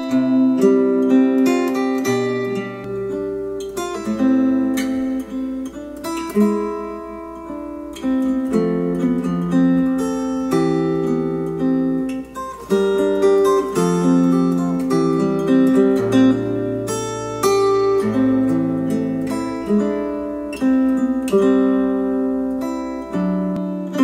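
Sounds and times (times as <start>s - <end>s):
acoustic guitar music: 0.0s - 24.0s.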